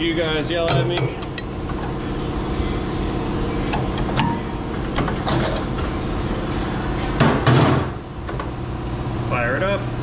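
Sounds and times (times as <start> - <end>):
wrench clinking on metal: 0.7 - 1.5.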